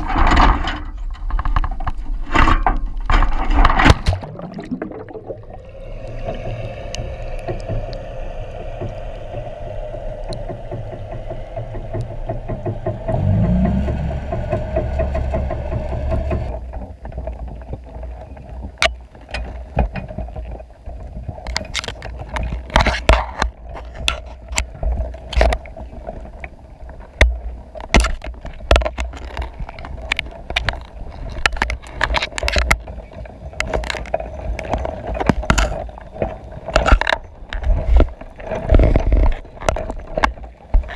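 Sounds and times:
low rumble: 0:02.9 - 0:17.9
muffled underwater hum: 0:03.1 - 0:40.9.

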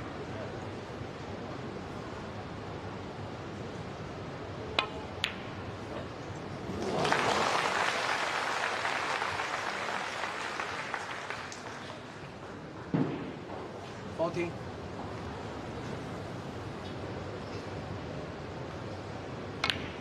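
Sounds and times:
snooker balls clicking: 0:04.8 - 0:05.5, 0:19.6 - 0:20.0
audience applause: 0:06.7 - 0:12.3.

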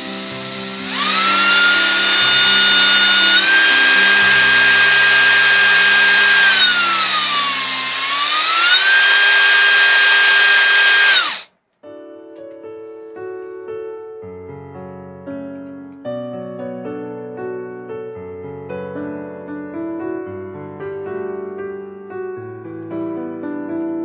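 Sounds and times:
impact driver motor whine: 0:00.0 - 0:11.5.

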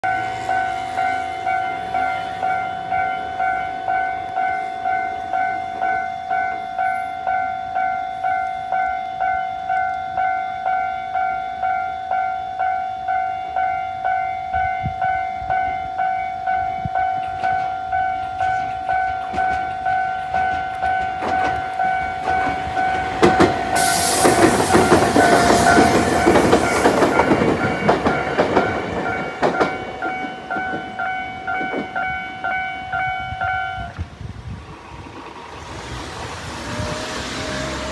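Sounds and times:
level-crossing warning bell: 0:00.0 - 0:34.0
electric train passing: 0:00.0 - 0:37.9
train wheel clatter: 0:16.8 - 0:33.1.

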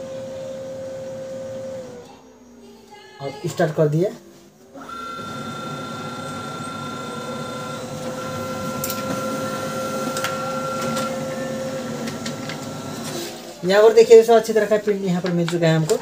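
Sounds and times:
printer motor and gear whine: 0:00.0 - 0:02.1, 0:04.7 - 0:16.0
printer clicks: 0:10.1 - 0:11.2.

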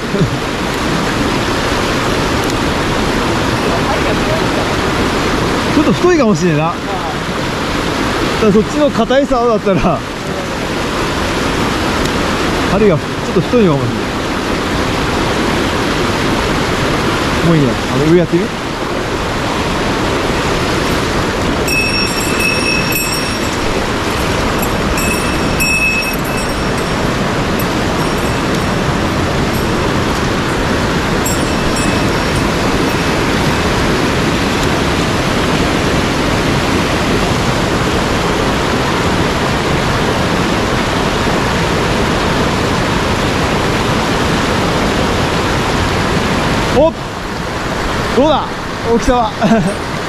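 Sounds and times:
mountain stream rushing: 0:00.0 - 0:50.0
faint high tones: 0:21.6 - 0:33.8.

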